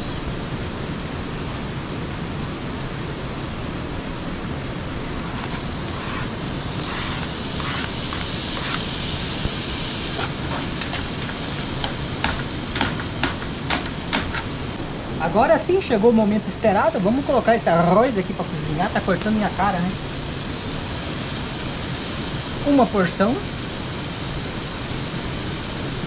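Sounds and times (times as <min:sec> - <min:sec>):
sausage and onion sizzling in pan: 0:04.2 - 0:26.0
utensil clicking against pan: 0:10.2 - 0:14.5.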